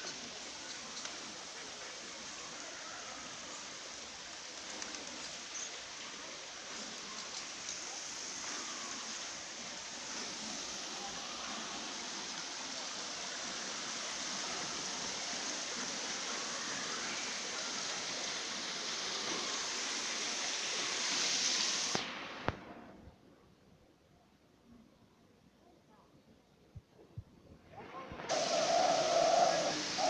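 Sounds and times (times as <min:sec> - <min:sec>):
garden hose spraying water: 0:00.0 - 0:22.2, 0:28.3 - 0:30.0.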